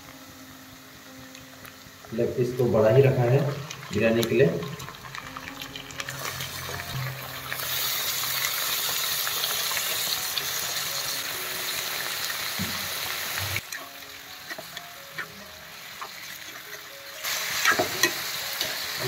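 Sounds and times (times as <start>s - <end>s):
chicken sizzling in hot oil: 1.8s - 19.0s.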